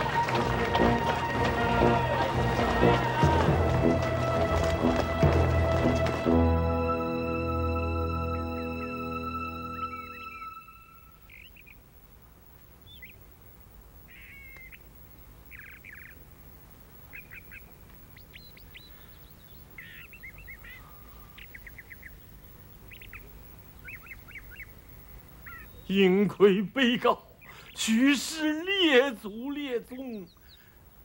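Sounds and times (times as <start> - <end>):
music cue: 0.0 - 11.3
small birds chirping and trilling: 9.7 - 11.9, 12.8 - 31.0.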